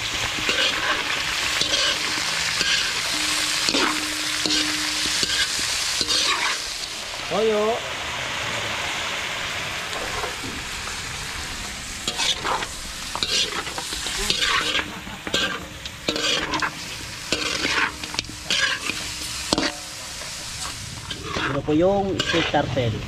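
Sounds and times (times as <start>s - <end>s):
metal spatula scraping a pan: 0.0s - 7.0s, 12.0s - 22.8s
meat sizzling in a wok: 0.0s - 23.0s.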